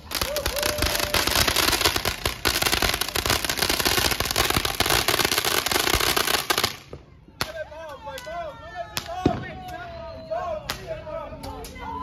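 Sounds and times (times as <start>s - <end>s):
fireworks crackling: 0.0s - 8.4s.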